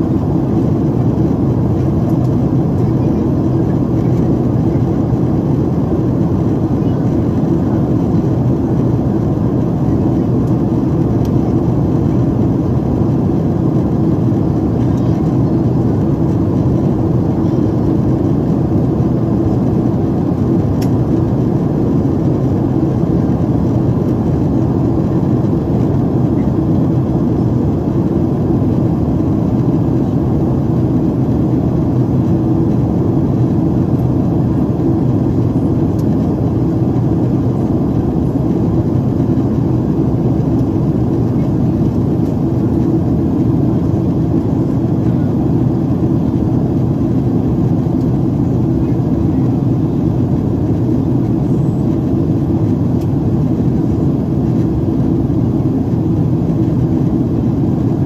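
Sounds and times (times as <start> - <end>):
airplane cabin rumble: 0.0 - 58.0.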